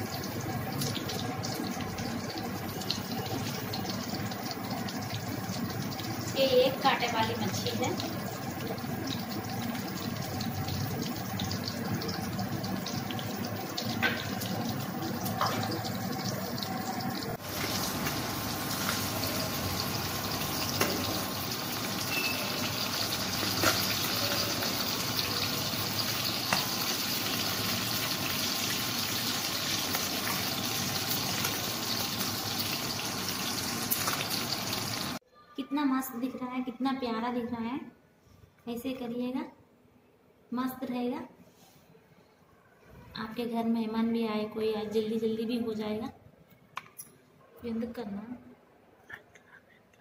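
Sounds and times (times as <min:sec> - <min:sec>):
fish sizzling in hot oil: 0:00.0 - 0:35.2.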